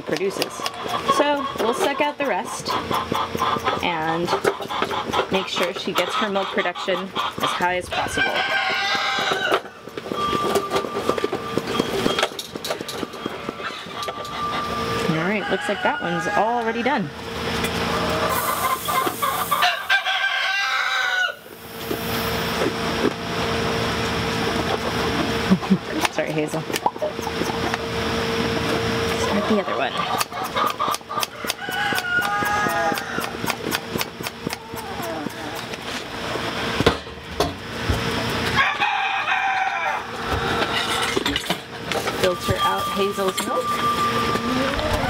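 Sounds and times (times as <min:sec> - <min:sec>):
rooster crowing: 0:07.9 - 0:09.8, 0:14.4 - 0:16.8, 0:19.6 - 0:21.5, 0:31.3 - 0:33.5, 0:38.5 - 0:40.8
steady hum: 0:21.3 - 0:31.3, 0:33.0 - 0:45.0.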